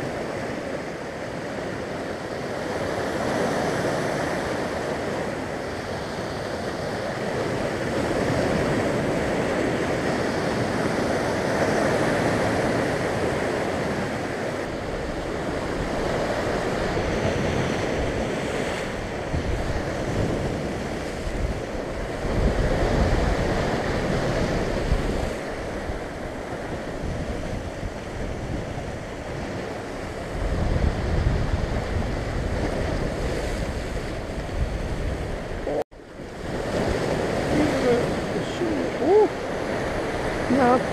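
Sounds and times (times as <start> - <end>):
waves breaking on rocky shore: 0.0 - 40.9
wind rumble on microphone: 0.0 - 40.9.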